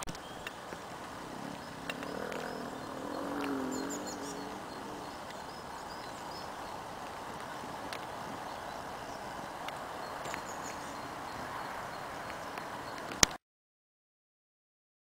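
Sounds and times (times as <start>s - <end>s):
high bird chirps: 1.4s - 6.9s.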